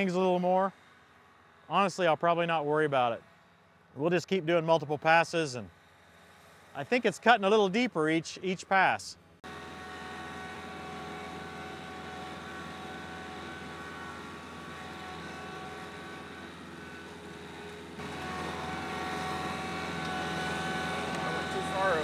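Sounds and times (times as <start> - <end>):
tractor diesel engine under load: 10.5 - 22.0.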